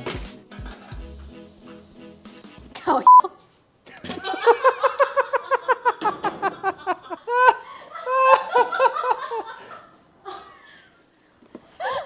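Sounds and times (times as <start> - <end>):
woman laughing hard: 3.9 - 10.8.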